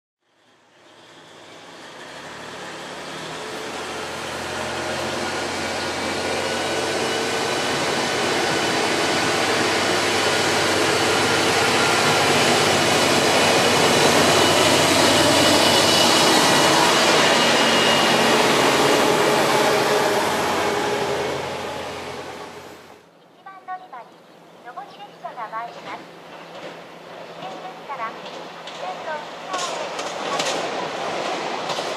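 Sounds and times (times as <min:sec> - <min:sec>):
diesel railcar engine: 0:00.3 - 0:23.2, 0:24.4 - 0:31.9
train wheels on rails: 0:00.4 - 0:23.0, 0:25.4 - 0:31.9
steady whining tones: 0:03.7 - 0:23.1.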